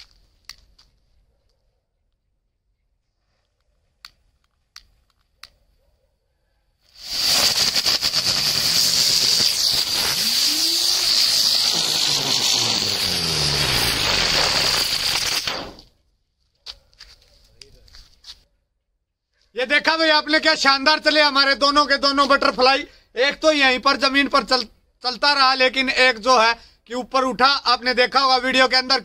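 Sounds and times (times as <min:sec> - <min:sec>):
fireworks hissing and whirring: 0:06.8 - 0:15.9.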